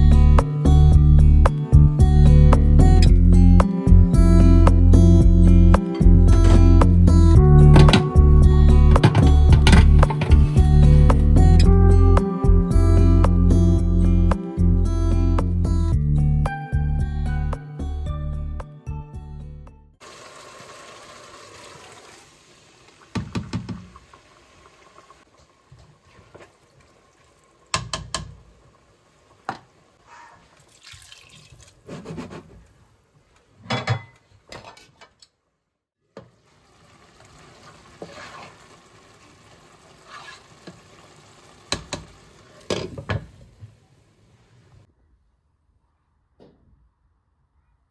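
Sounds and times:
tomato sauce simmering: 20.0s - 30.0s, 36.1s - 44.0s
water pouring from a glass: 30.6s - 31.8s.

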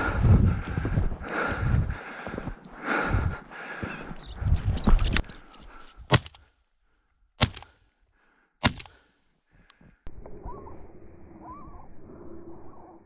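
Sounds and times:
faint outdoor background: 0.0s - 13.0s
shotgun shots: 6.1s - 6.4s, 7.4s - 7.8s, 8.6s - 9.0s
small mechanical clicks: 8.6s - 9.0s.

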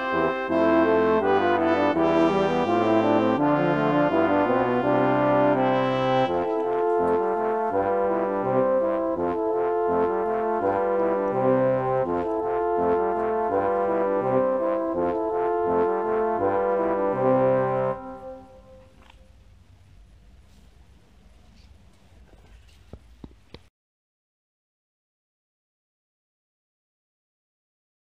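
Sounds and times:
trumpet ensemble music: 0.0s - 19.0s.

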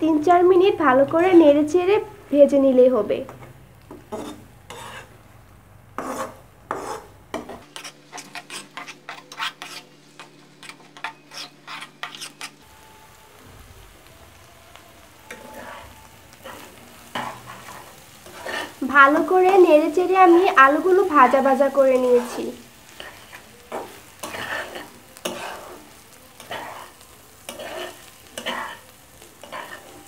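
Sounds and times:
metal utensil scraping frying pan: 3.9s - 5.2s, 6.0s - 12.6s, 15.3s - 30.0s
filling sizzling in oil: 6.0s - 30.0s.

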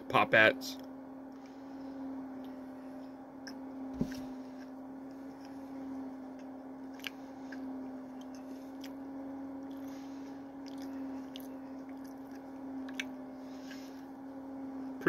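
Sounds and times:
steady low hum: 0.0s - 15.0s
person chewing: 6.9s - 7.2s, 8.2s - 9.0s, 10.6s - 13.1s.

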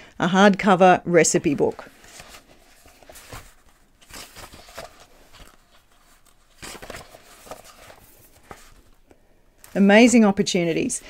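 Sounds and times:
book pages flipping: 1.3s - 10.1s.

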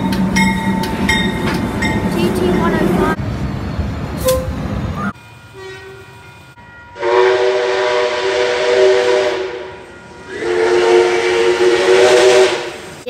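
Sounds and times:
diesel locomotive passing: 0.0s - 13.0s
steam locomotive chime whistle: 4.2s - 12.9s.

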